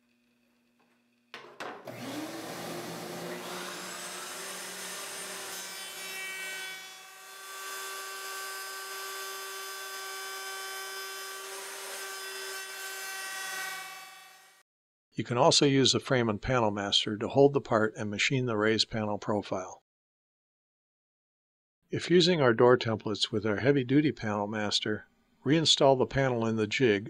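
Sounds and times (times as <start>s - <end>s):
router whining: 1.8s - 5.6s
router bit cutting wood: 1.8s - 14.6s.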